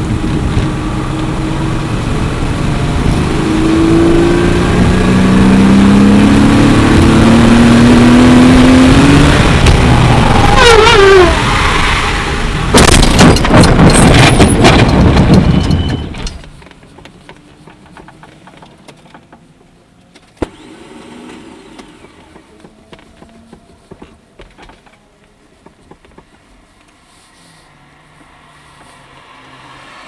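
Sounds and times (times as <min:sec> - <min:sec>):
race car sliding and rumbling: 0:00.0 - 0:19.4
sharp clattering knocks: 0:12.7 - 0:19.4.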